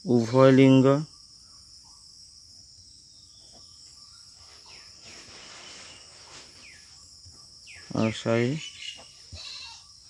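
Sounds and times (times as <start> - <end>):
high-pitched insect chirring: 0.0 - 10.0.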